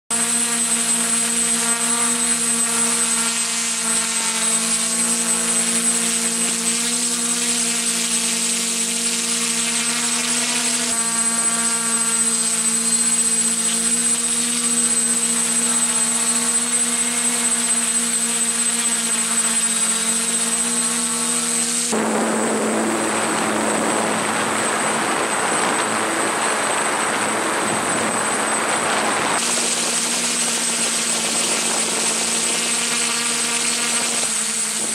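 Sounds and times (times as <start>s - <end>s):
drone motors humming: 0.1s - 34.9s
thin high whine: 0.1s - 34.9s
rushing noise: 21.9s - 31.8s.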